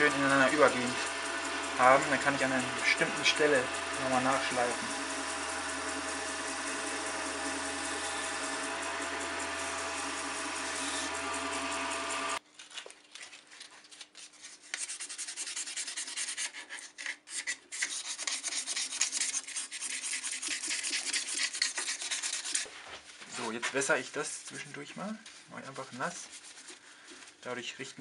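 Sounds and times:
lathe motor humming: 0.0s - 12.4s
sandpaper rubbing spinning wood: 0.0s - 12.4s, 14.7s - 16.6s, 17.8s - 22.7s, 23.3s - 26.8s.

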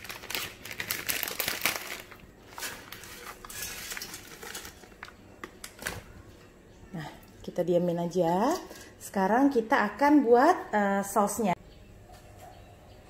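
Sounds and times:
dry spaghetti crackling: 0.0s - 6.2s.

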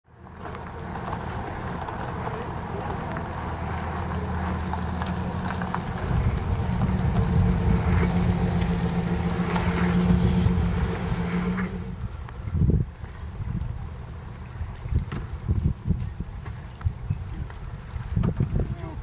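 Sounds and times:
pickup truck engine humming: 0.1s - 12.5s.

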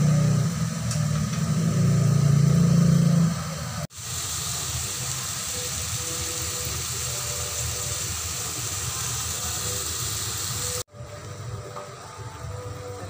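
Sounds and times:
food sizzling in metal pan: 3.9s - 10.9s.

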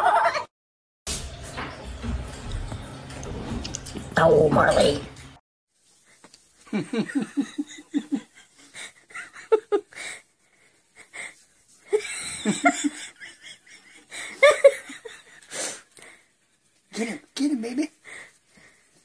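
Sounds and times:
person laughing: 0.0s - 0.5s, 6.7s - 10.2s, 11.0s - 15.4s.

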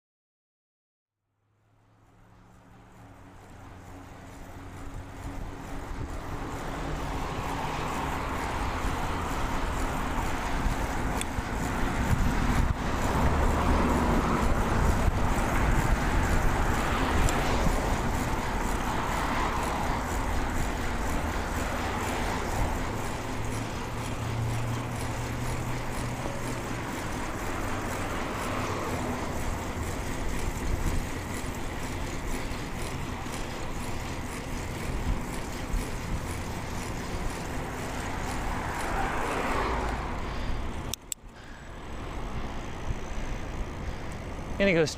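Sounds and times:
cars passing: 1.6s - 44.9s
wind rumbling on microphone: 9.9s - 21.0s.

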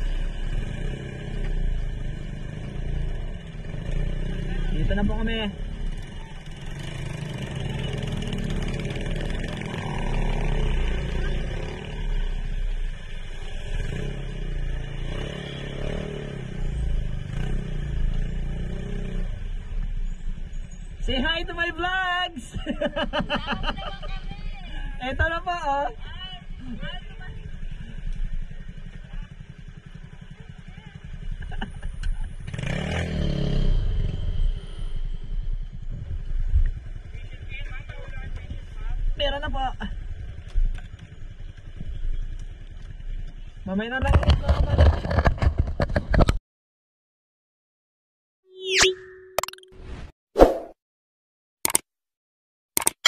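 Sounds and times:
engine revving: 0.0s - 12.4s, 13.3s - 19.5s, 32.4s - 35.9s
motorcycle engine running: 23.5s - 46.1s
scooter engine idling: 25.7s - 32.5s.

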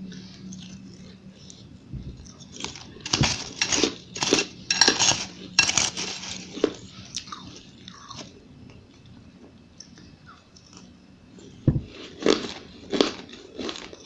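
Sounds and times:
crunching ice: 2.5s - 8.3s, 12.0s - 14.0s
metal spoon scraping ice: 2.6s - 6.8s.

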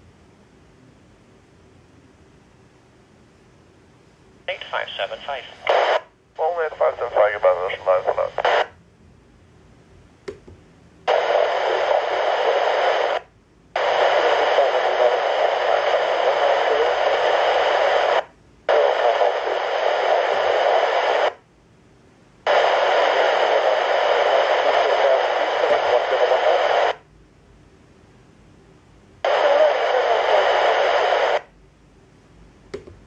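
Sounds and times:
radio scanner static hiss: 4.4s - 8.8s, 11.0s - 21.5s, 22.4s - 27.1s, 29.1s - 31.6s.

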